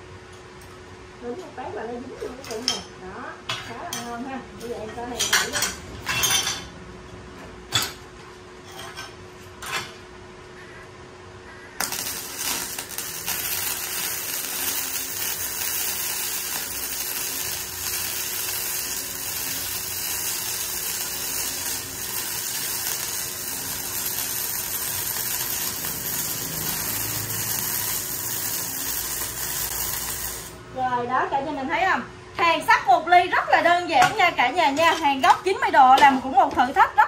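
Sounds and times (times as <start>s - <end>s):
welding arc crackling sizzle: 11.7s - 31.1s.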